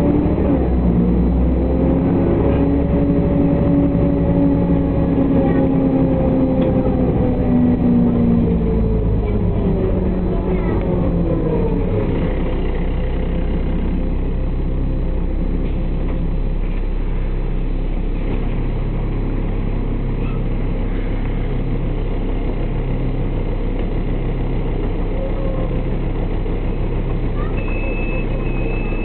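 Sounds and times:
bus engine idling: 0.0s - 29.0s.

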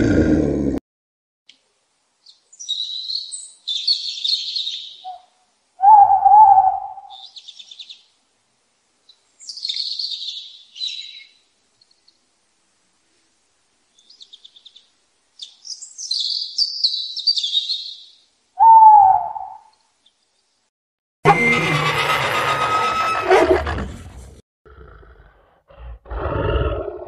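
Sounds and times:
high bird chirping and trills: 2.2s - 8.2s, 9.0s - 12.2s, 13.9s - 20.5s
low hooting bird call: 4.5s - 7.5s, 18.6s - 19.8s.

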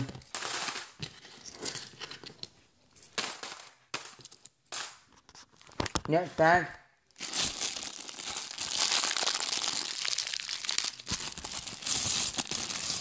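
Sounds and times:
coins clinking into a pot: 0.3s - 1.0s, 3.0s - 5.0s, 11.6s - 13.0s.

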